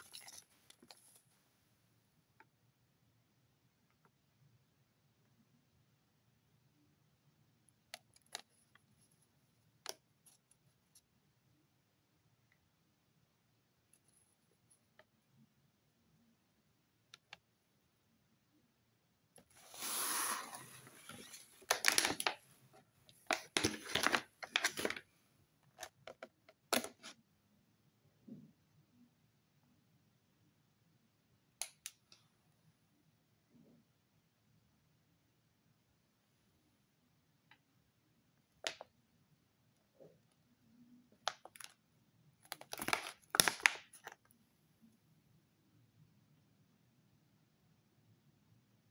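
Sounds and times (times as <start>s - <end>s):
plastic packaging crackling: 19.7s - 22.4s, 42.5s - 44.2s
food packaging rustling and crinkling: 23.2s - 25.0s.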